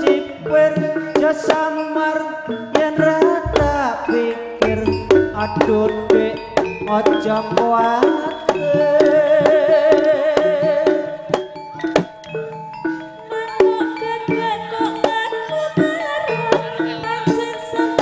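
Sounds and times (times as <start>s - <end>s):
hand drums: 0.0s - 12.3s
gamelan metallophones: 0.0s - 18.0s
long wavering held note: 4.6s - 8.0s.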